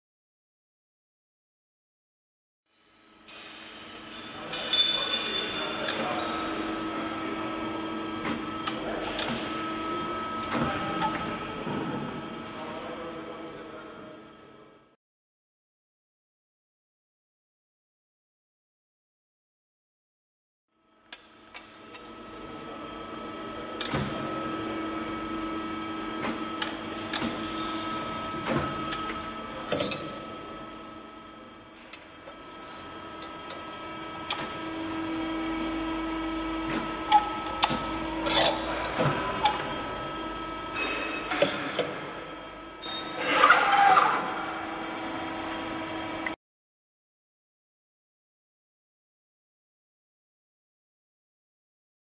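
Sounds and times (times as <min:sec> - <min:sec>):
machine hum with whine: 0:02.8 - 0:15.0, 0:20.8 - 0:46.4.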